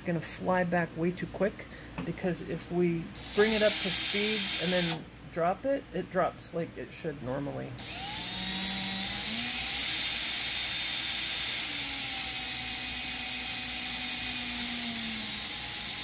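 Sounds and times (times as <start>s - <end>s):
electric drill motor whine: 3.2s - 5.0s, 7.8s - 16.0s.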